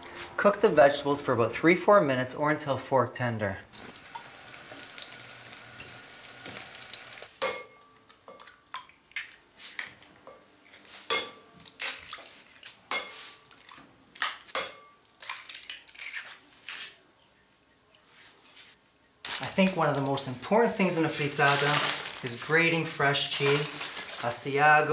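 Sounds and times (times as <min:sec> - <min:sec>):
vegetables sizzling in a frying pan: 0:03.8 - 0:07.3.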